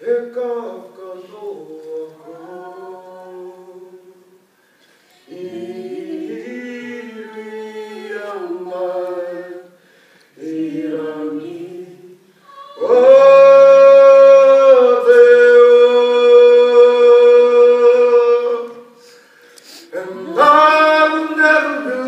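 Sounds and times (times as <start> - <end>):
singer breathing: 4.5 - 5.3, 9.8 - 10.4, 18.9 - 20.0
person singing unaccompanied: 10.5 - 18.9.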